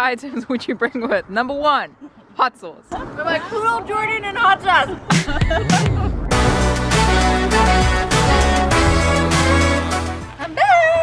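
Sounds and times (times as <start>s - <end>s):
music with deep bass and beat: 5.1s - 10.4s.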